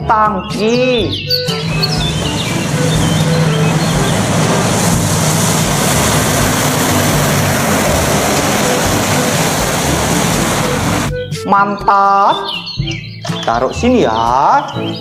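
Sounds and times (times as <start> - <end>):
diesel truck engine: 1.0 - 11.2
tyres hissing on wet road: 1.5 - 11.1.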